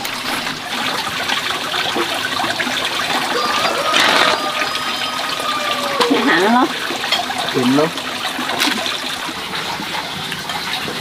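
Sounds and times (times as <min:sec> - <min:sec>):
water trickling: 0:00.0 - 0:11.0
thin high tone: 0:03.3 - 0:06.6.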